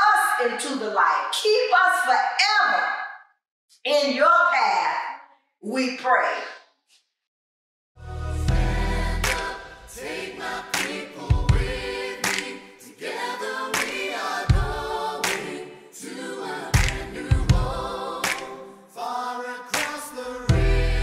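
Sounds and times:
group of voices singing: 0:08.0 - 0:21.0
sharp percussive hits: 0:16.8 - 0:18.5.

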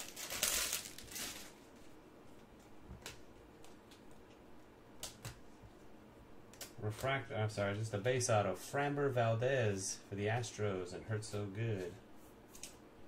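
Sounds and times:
foil wrapper crinkling: 0:00.0 - 0:01.7.

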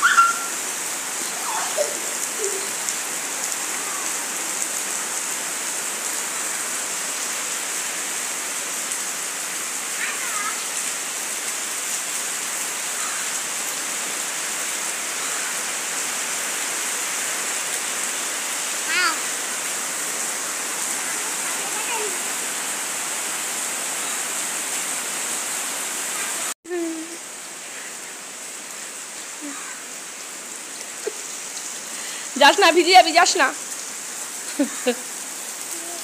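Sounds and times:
heavy rain on wet ground: 0:00.0 - 0:36.0.

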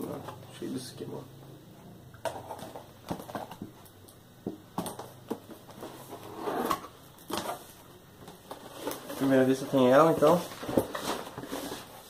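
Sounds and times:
cardboard sliding and scraping: 0:08.6 - 0:12.0.

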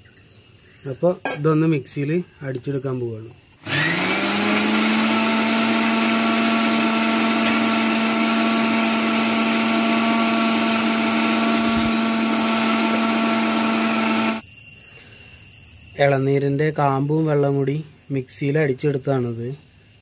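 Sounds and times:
mixer grinder running: 0:03.6 - 0:14.4.

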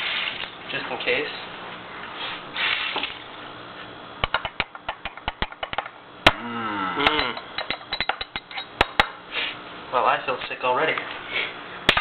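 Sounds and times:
short voice sound: 0:06.4 - 0:07.4.

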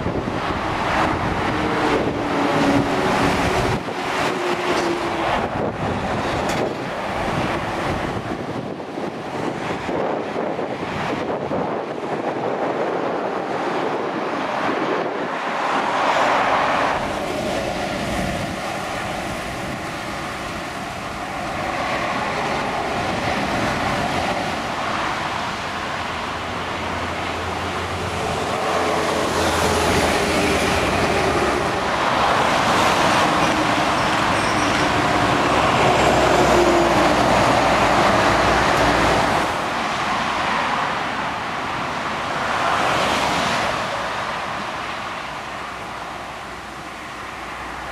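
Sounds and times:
low diesel engine drone: 0:00.0 - 0:09.3
lorries and cars passing: 0:00.0 - 0:47.9.

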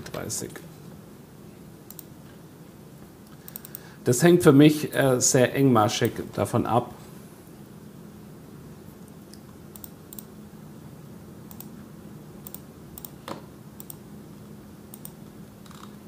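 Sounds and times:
steady low hum: 0:00.0 - 0:16.0
computer mouse and keys clicking: 0:01.9 - 0:02.4, 0:03.2 - 0:03.9, 0:09.0 - 0:10.4, 0:11.5 - 0:11.8, 0:12.4 - 0:14.1, 0:14.9 - 0:16.0.

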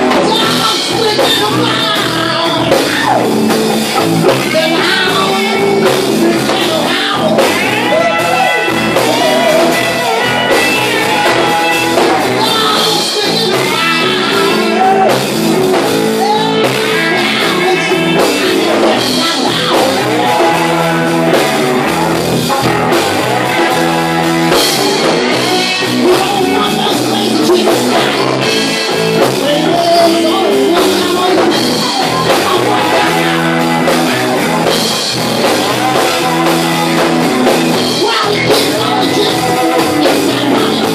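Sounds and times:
bass: 0:00.0 - 0:40.9
drum kit: 0:00.0 - 0:40.9
electric guitars: 0:00.0 - 0:40.9
man singing: 0:00.0 - 0:40.9.

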